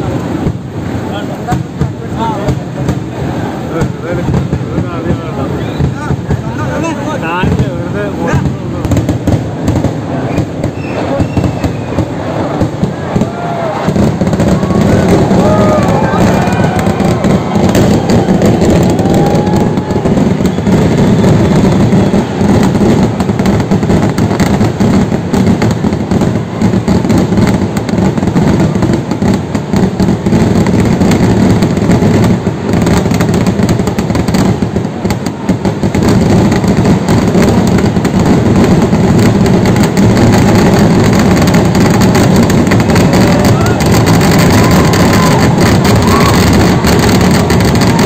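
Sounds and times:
firework explosions rumbling: 0:00.0 - 0:48.0.

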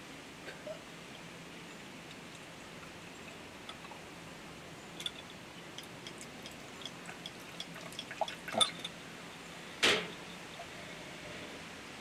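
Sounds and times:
drips and small clicks: 0:02.0 - 0:04.0, 0:05.0 - 0:09.0
glass clinks: 0:07.2 - 0:09.0.

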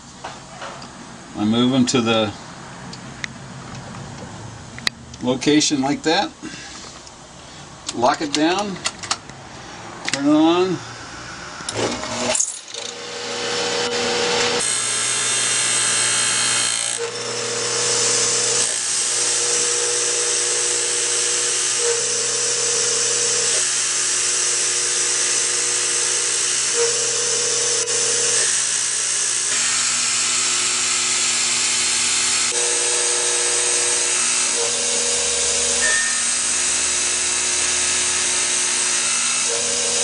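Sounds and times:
machine hum: 0:09.4 - 0:40.0
grinder grinding steel: 0:10.4 - 0:40.0.

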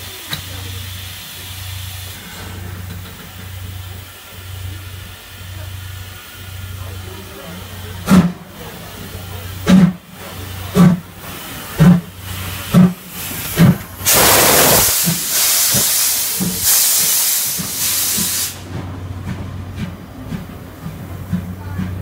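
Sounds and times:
loud hiss of steam: 0:00.0 - 0:18.7
faint clicking of train wheels: 0:00.1 - 0:00.7, 0:15.0 - 0:22.0
steam locomotive exhaust chuffs: 0:00.1 - 0:22.0.

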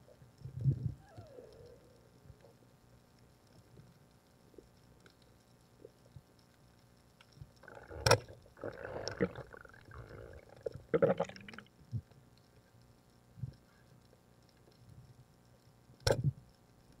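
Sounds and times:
underwater swirling and bubbling: 0:00.0 - 0:17.0
sharp click: 0:16.0 - 0:16.3.

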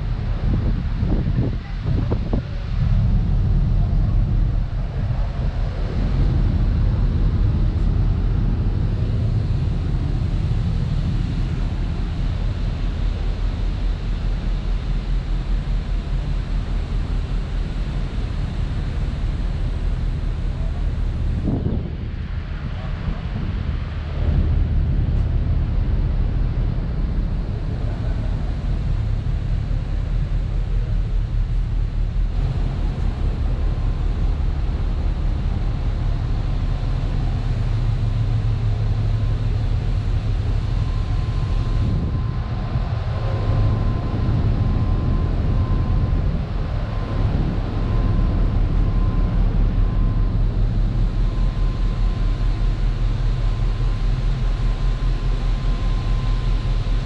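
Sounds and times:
ship machinery rumble: 0:00.0 - 0:57.0.

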